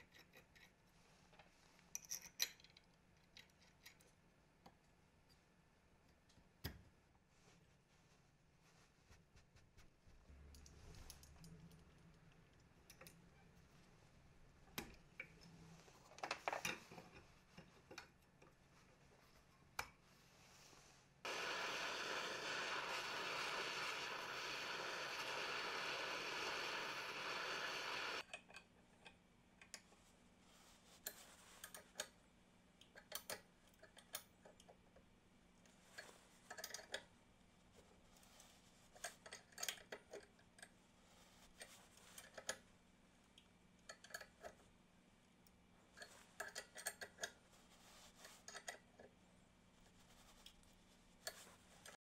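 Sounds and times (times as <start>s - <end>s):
heat gun hissing: 21.2s - 28.2s.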